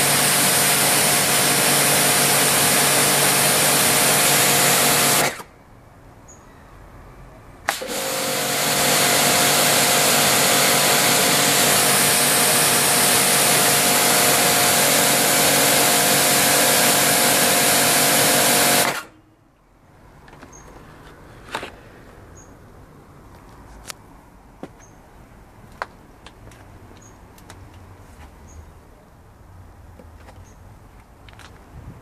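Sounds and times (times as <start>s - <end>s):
pressure washer running: 0.0s - 5.5s, 7.7s - 19.1s.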